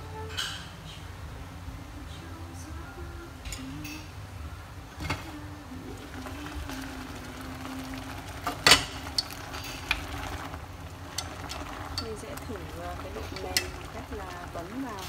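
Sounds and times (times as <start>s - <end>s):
low steady hum: 0.0s - 15.0s
water boiling in pot: 4.7s - 15.0s
chopsticks tapping metal pot: 11.1s - 15.0s.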